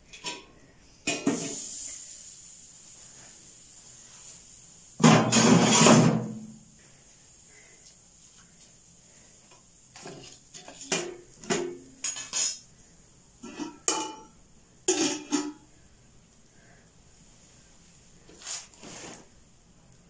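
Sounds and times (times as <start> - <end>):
metal pots and utensils clattering: 0.1 - 1.6, 5.0 - 6.4, 10.0 - 12.7, 13.4 - 15.7.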